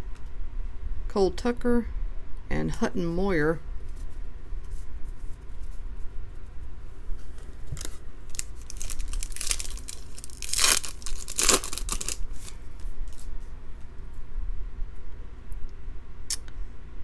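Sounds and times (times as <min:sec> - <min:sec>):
foil pack crinkling: 0:07.6 - 0:13.3
foil pack tearing: 0:07.8 - 0:13.2.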